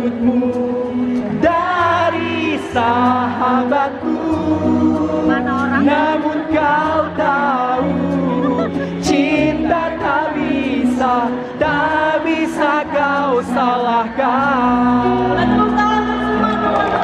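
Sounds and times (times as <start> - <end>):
band playing: 0.0 - 17.0
woman singing a slow ballad: 4.0 - 9.5.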